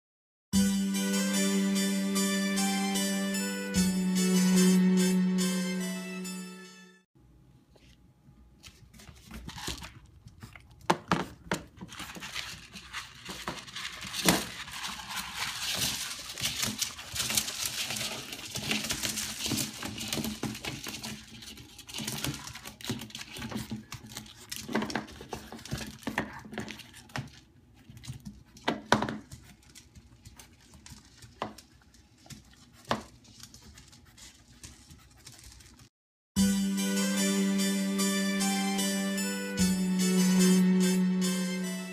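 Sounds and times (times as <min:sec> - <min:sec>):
puppy crunching dry kibble: 0:09.4 - 0:35.9.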